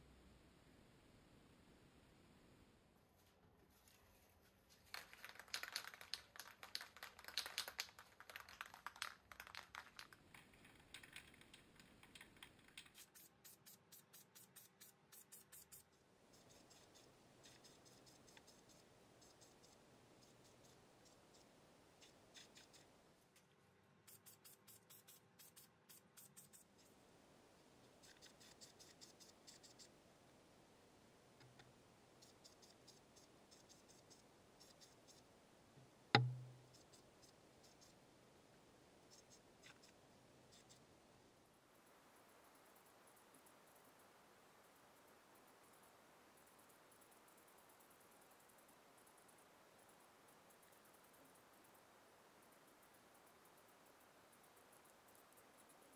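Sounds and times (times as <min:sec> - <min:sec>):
low hiss: 0:00.0 - 0:55.9
aerosol can ball rattling: 0:04.8 - 0:10.2, 0:36.2 - 0:36.6.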